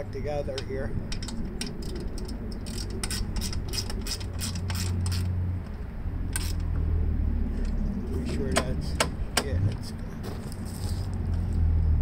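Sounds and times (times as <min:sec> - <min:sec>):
steady low hum: 0:00.0 - 0:12.0
clicks and rattles of hand tools: 0:00.5 - 0:05.3.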